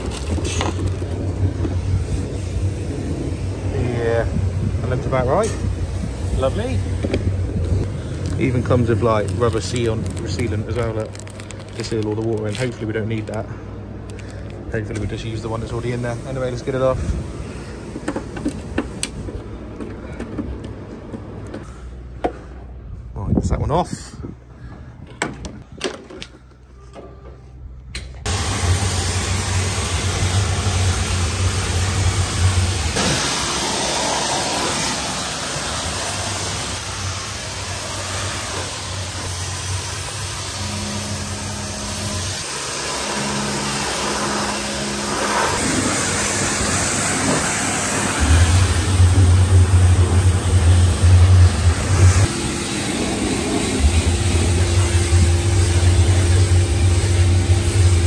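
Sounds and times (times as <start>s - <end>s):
pressure washer water jet hiss: 0.0s - 11.0s, 15.2s - 19.0s, 28.3s - 58.0s
machine low hum: 26.6s - 58.0s.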